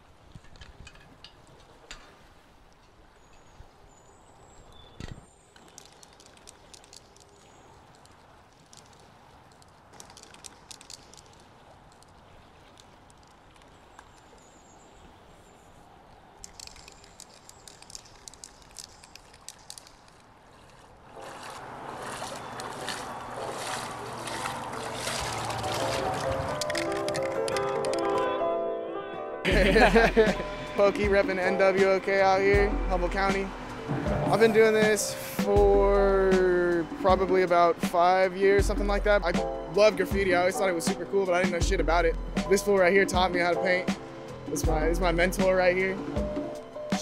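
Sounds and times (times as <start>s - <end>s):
water trickling and sloshing: 0.0s - 28.2s
small clicks and knocks: 0.3s - 2.1s, 5.0s - 14.2s, 16.4s - 20.3s
music: 25.6s - 47.0s.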